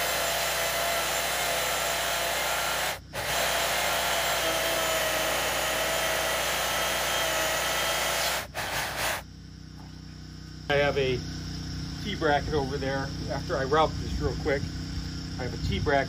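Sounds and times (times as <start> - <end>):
electric chainsaw cutting wood: 0.0 - 9.2.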